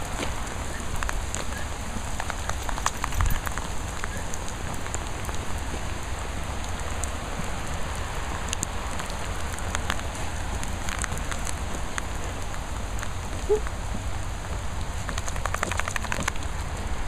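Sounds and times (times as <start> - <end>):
rain falling on wet tarmac: 0.0 - 17.0
raindrops ticking: 0.0 - 17.0.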